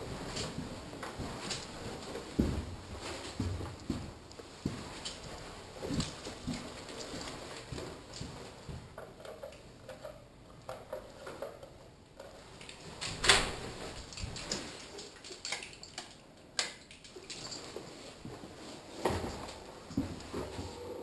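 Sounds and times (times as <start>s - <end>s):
door latch and opening: 13.0s - 13.6s.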